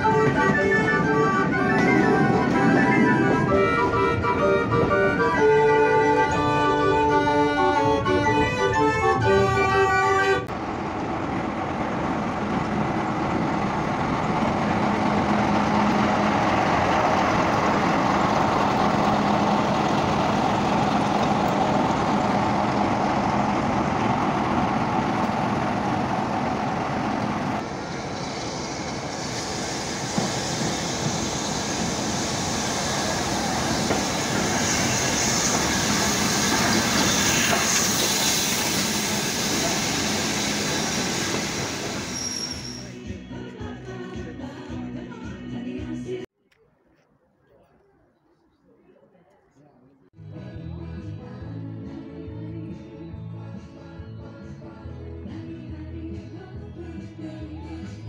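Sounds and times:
high harsh wheel noise: 0.0 - 43.0
wheels rumbling on rails: 0.0 - 43.0
diesel locomotive engine humming: 0.0 - 44.3.

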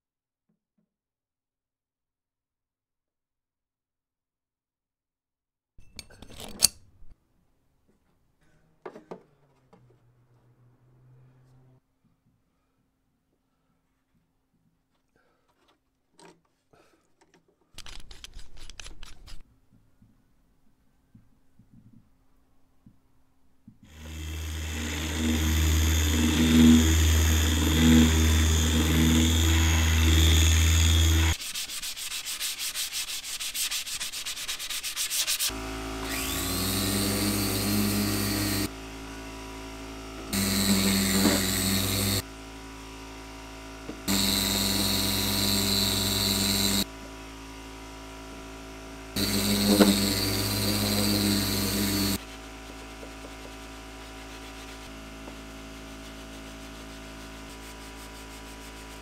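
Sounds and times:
loud steady machine sound: 23.9 - 31.4, 35.5 - 52.8
orbital sander whining: 23.9 - 34.0, 34.9 - 59.0.

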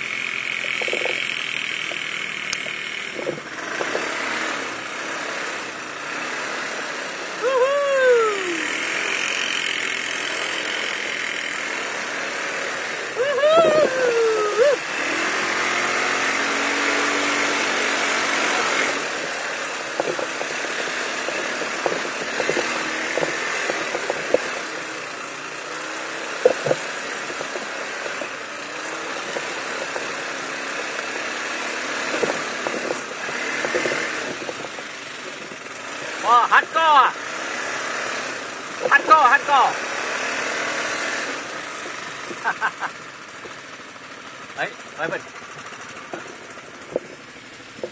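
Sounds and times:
atv engine running: 0.0 - 47.9
knocks and rattles of machine: 0.6 - 4.5, 19.6 - 24.7, 26.4 - 28.4, 31.2 - 35.7, 45.0 - 47.9.

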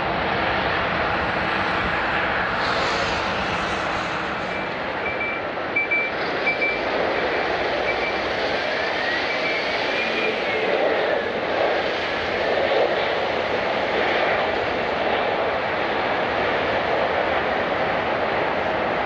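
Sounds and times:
jet engines roaring: 0.0 - 19.0
whining tone: 2.5 - 11.4
short high beeps: 4.5 - 6.8.

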